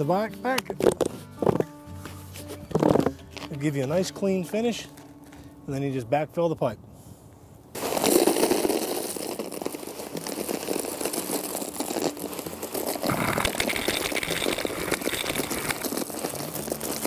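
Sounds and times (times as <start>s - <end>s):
gravel pouring and rattling: 7.7s - 17.0s.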